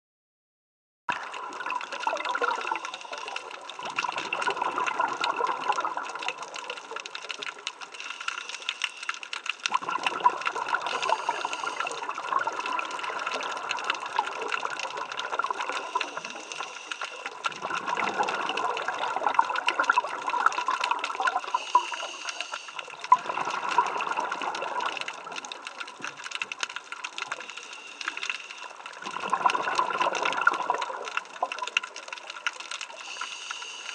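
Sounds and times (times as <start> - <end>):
exhaled bubbles rushing: 1.1 - 8.0, 9.6 - 27.6, 28.2 - 32.5
diver breathing through regulator: 11.0 - 12.1, 21.5 - 23.0, 33.0 - 33.9.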